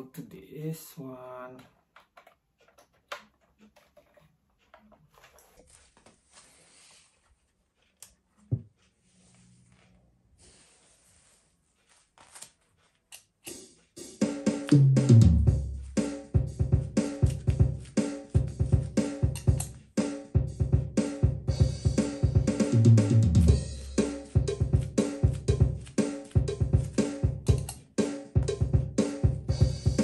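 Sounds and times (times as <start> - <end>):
drum machine pattern: 13.4 - 30.0
bass line: 14.8 - 19.7, 20.4 - 27.8.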